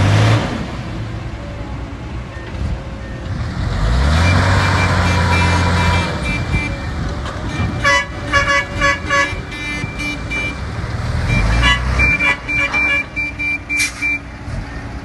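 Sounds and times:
diesel truck engine revving: 0:00.0 - 0:15.0
vehicle horn short toots: 0:07.4 - 0:10.6, 0:11.4 - 0:14.1.

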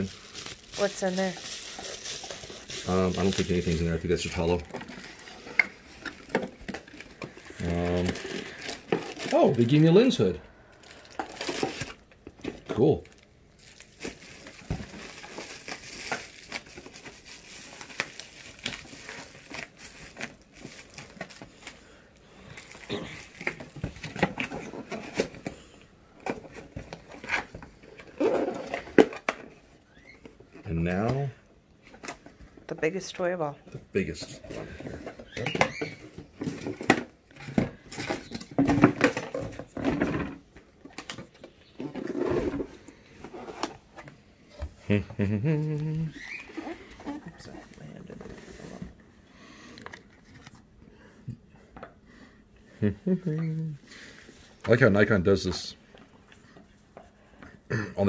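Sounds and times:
plastic packaging crinkling: 0:00.0 - 0:25.5
cardboard rustling and scraping: 0:34.4 - 0:44.1.

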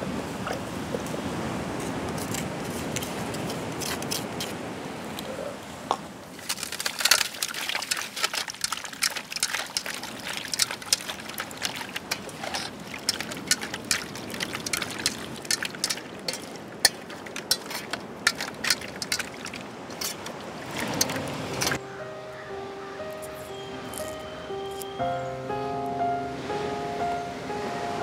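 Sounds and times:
water splashing and trickling: 0:00.0 - 0:05.3, 0:06.2 - 0:21.8.

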